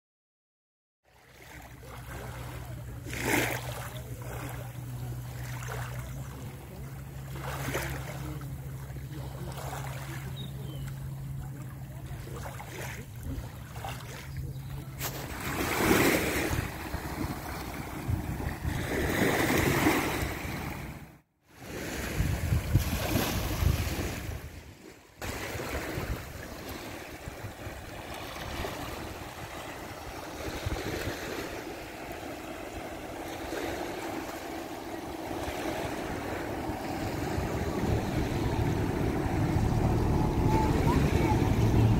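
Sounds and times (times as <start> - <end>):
waves lapping on concrete slipway: 1.1 - 41.9
low steady hum: 1.4 - 15.7, 25.4 - 41.9
wind on microphone: 14.9 - 20.9, 21.8 - 41.9.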